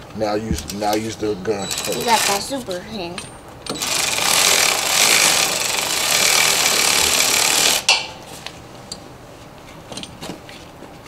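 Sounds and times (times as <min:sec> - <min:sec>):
electric ratchet running: 0:01.6 - 0:02.6, 0:03.7 - 0:07.9.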